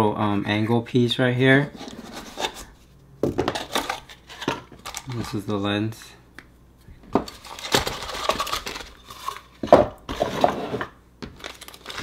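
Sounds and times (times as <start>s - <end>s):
plastic bags crinkling: 3.5s - 5.5s, 7.2s - 9.6s, 11.3s - 12.0s.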